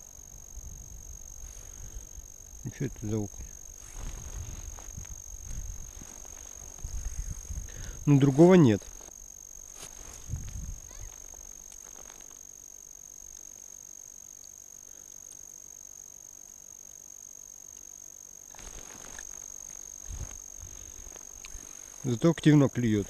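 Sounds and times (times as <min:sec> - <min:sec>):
rustle of movement: 0:03.1 - 0:12.5, 0:18.5 - 0:22.2.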